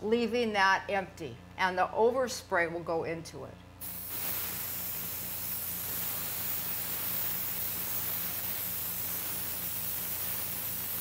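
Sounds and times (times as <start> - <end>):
airbrush hissing: 3.8 - 11.0.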